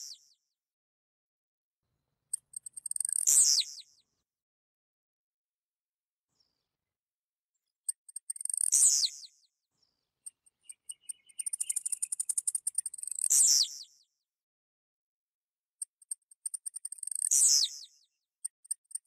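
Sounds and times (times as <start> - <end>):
small bird singing: 0.0 - 0.4, 2.3 - 4.1, 7.6 - 14.2, 15.8 - 19.0
rapid high bird ticks: 2.3 - 3.4, 7.9 - 8.9, 10.3 - 13.5, 15.8 - 19.0.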